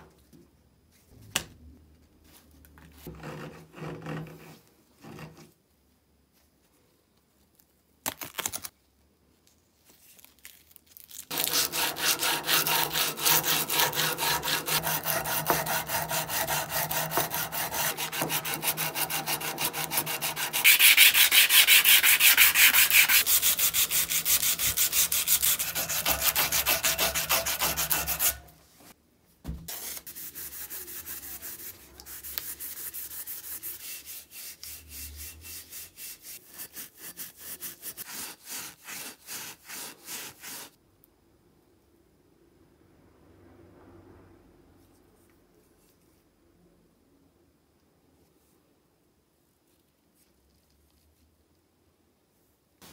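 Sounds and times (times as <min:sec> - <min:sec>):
sandpaper rubbing on steel: 0:11.3 - 0:28.5, 0:29.7 - 0:40.8
scouring pad rubbing metal: 0:11.3 - 0:28.5.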